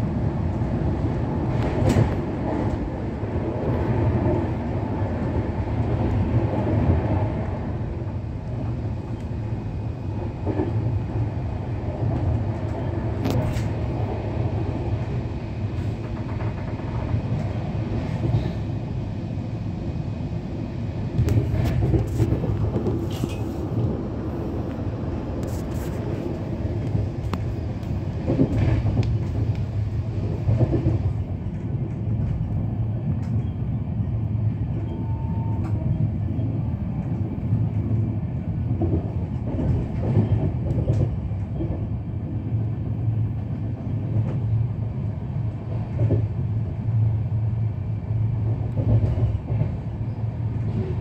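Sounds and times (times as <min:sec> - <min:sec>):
train coach rumble: 0:00.0 - 0:51.0
wheels clacking on track: 0:15.7 - 0:18.7.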